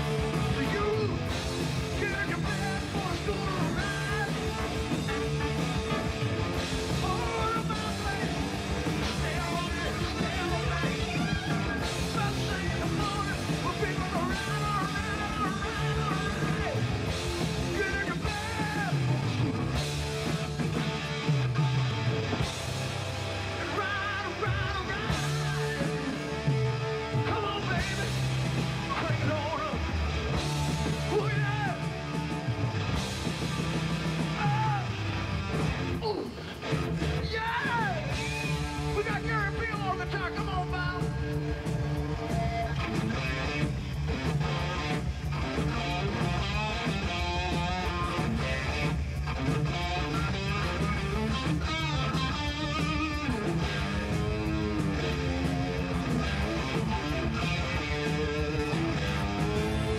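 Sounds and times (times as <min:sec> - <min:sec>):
bending electric guitar lead: 0:00.0 - 0:59.9
live hard rock band: 0:00.0 - 0:59.9
electric guitar bending notes: 0:40.9 - 0:59.9.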